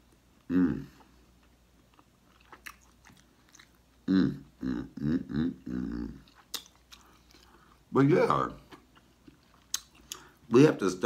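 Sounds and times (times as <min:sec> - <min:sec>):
man humming and moaning: 0:00.5 - 0:01.0, 0:04.0 - 0:06.2.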